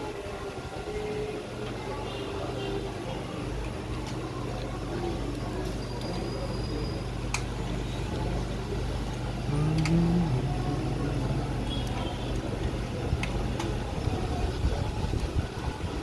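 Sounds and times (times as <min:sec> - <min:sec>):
low mechanical hum: 0:00.0 - 0:16.0
droning with rising tone: 0:09.5 - 0:11.8
sharp clicks: 0:09.7 - 0:10.0.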